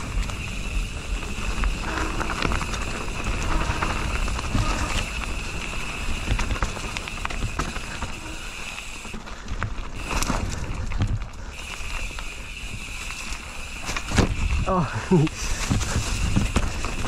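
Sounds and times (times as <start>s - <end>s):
wind rumbling on microphone: 0.0s - 8.5s, 13.9s - 17.0s
bike rattling: 0.0s - 17.0s
bike tyre noise: 0.0s - 17.0s.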